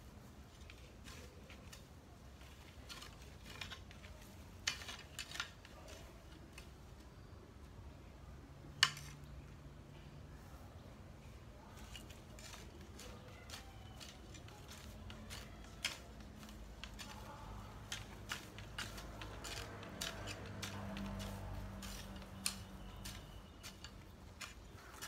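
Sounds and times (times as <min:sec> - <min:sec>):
rake scraping grass and soil: 0:00.1 - 0:06.8, 0:11.7 - 0:25.0.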